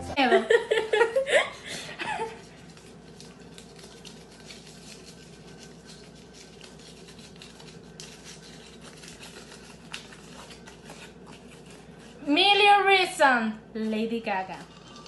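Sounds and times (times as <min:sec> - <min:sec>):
low steady hum: 0:00.0 - 0:15.0
paper crinkling: 0:02.1 - 0:12.2.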